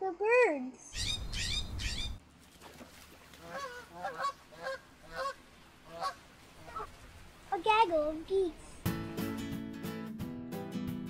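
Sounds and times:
birds chirping: 0.8 - 2.2
geese honking: 3.4 - 7.0.

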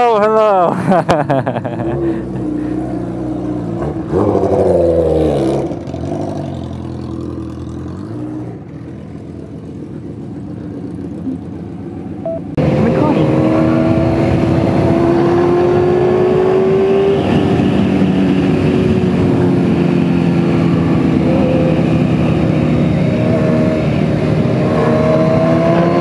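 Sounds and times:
motorcycle revving and pulling away: 1.0 - 26.0
motorcycle engines idling: 8.5 - 12.6.

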